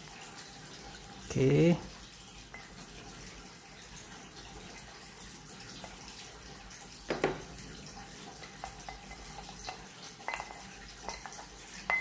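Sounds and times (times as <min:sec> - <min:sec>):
knock: 0:07.1 - 0:07.4.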